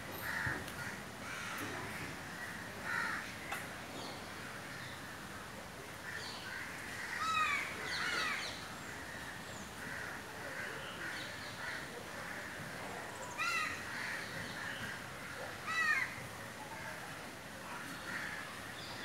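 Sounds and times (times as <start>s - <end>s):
steady background hiss: 0.0s - 19.0s
harsh caw-like animal calls: 2.8s - 3.3s.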